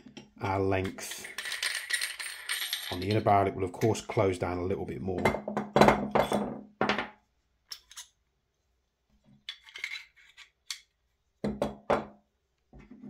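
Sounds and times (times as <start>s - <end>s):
small parts clicking and clinking: 1.2s - 3.3s.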